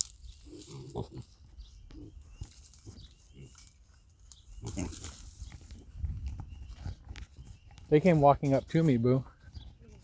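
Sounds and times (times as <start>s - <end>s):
piglets grunting: 0.4s - 3.6s, 4.5s - 5.3s.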